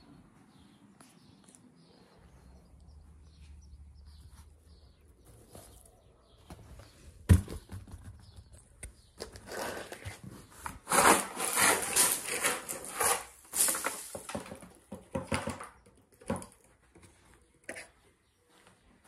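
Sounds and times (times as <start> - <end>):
cardboard chunks clattering on tile: 9.2 - 16.7.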